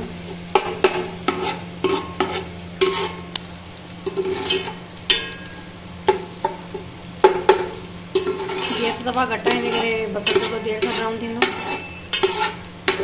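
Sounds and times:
onions sizzling in oil: 0.0s - 13.0s
metal spoon clinking on pot: 4.0s - 6.6s, 7.2s - 13.0s.

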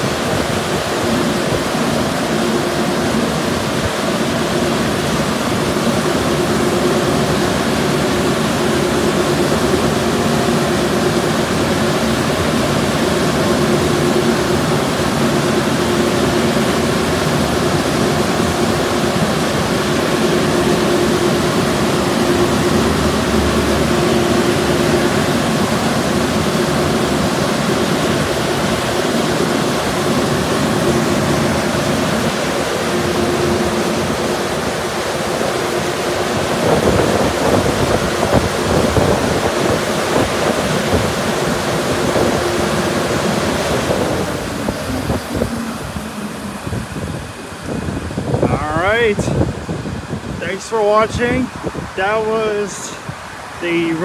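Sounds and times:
car wash rushing noise: 0.0s - 54.0s
constant hum: 0.0s - 54.0s.

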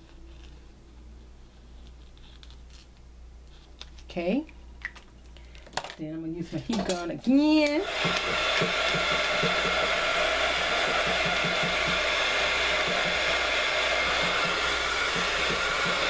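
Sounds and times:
heat gun blowing air: 7.7s - 16.0s.

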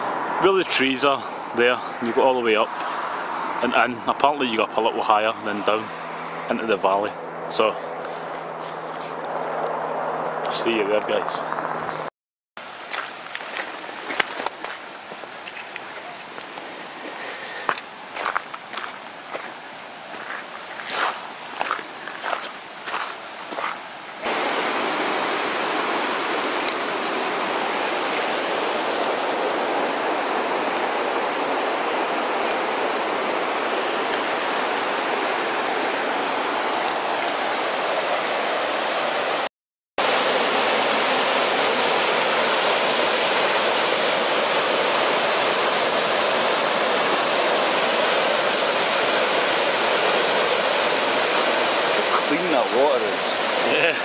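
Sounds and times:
footsteps on gravel: 8.1s - 9.4s, 12.7s - 23.8s
stream rushing over rocks: 12.6s - 54.0s.

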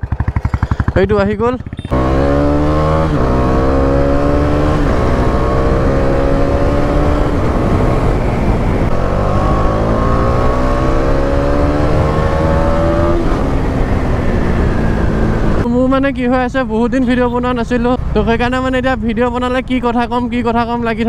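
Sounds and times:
motorcycle engine accelerating: 0.0s - 15.7s
wind rushing: 2.0s - 15.7s.

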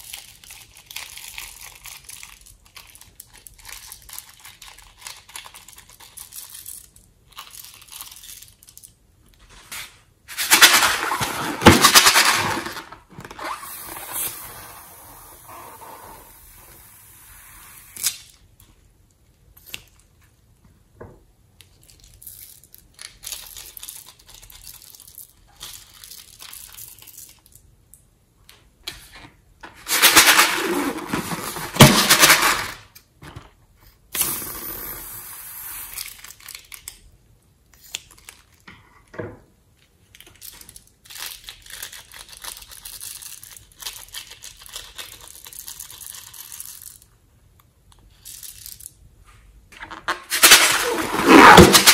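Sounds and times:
rubber balloons rubbing and crinkling: 10.3s - 16.9s, 29.8s - 32.5s, 49.9s - 51.9s.

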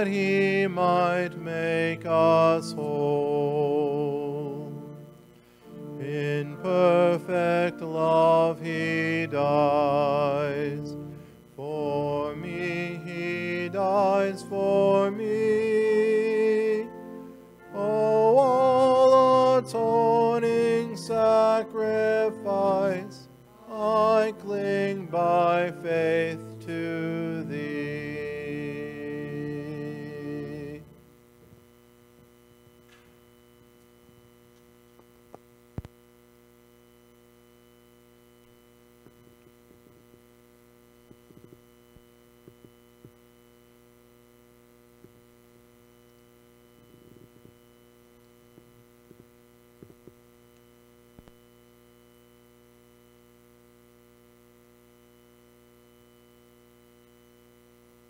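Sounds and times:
hymn sung with accompaniment: 0.0s - 5.0s, 5.9s - 30.9s
electrical mains hum: 0.0s - 58.0s.

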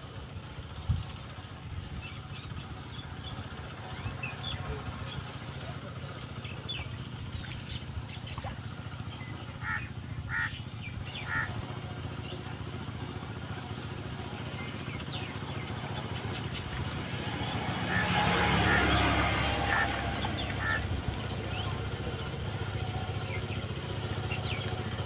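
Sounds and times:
crow cawing: 9.6s - 10.6s, 11.2s - 11.5s
small birds chirping: 13.7s - 18.0s, 18.7s - 25.0s.

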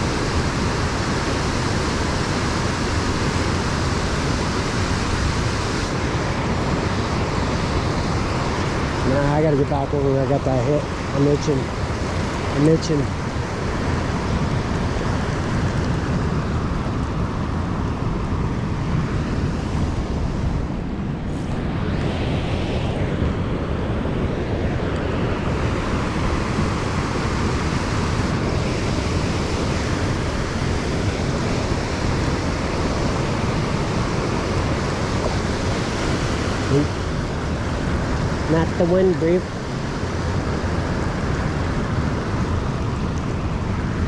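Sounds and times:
river water rushing: 0.0s - 44.0s
wind rumbling on microphone: 0.0s - 44.0s.

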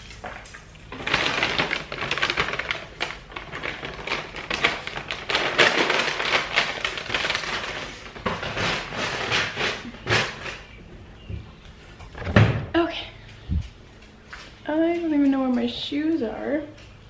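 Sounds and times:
plastic bag crinkling: 0.0s - 10.8s.

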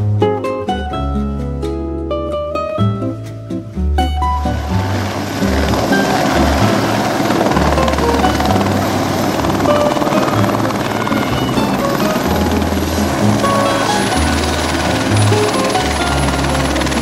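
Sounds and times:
background music with bass: 0.0s - 10.7s
helicopter rotor and engine: 4.6s - 17.0s.

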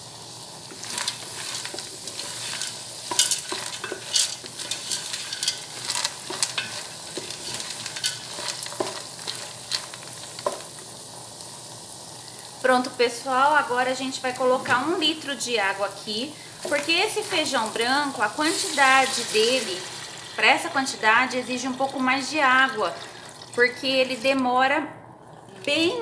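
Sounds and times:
frying sizzle: 0.0s - 24.3s
spoon scraping and knocking pan: 0.7s - 10.8s.

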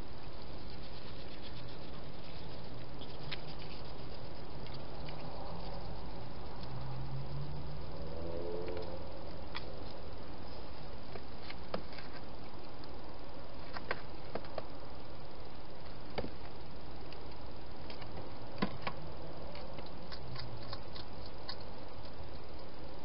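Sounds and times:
hedgehog eating ticks: 0.0s - 10.1s, 15.8s - 23.0s
steady hiss: 0.0s - 23.0s.

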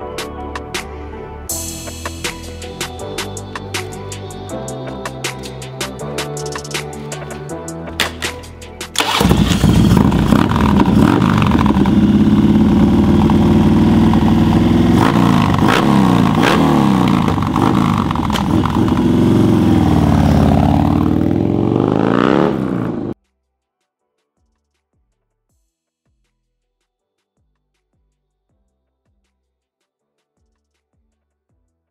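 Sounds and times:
motorcycle engine starting and revving: 9.0s - 23.2s.

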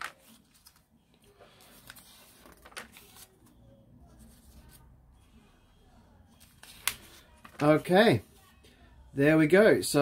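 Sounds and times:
booklet pages turning: 0.0s - 4.9s, 6.3s - 8.4s.

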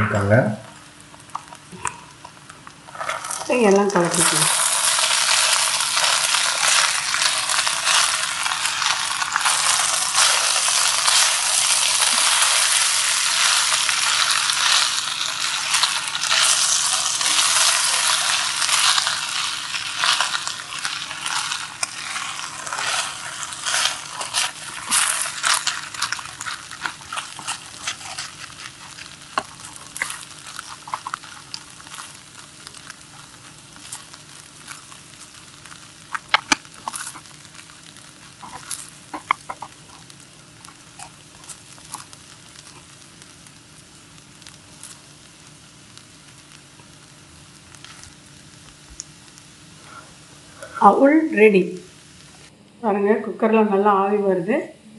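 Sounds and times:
flattened rice sizzling in pan: 0.8s - 52.5s
spatula scraping pan: 4.2s - 35.0s.

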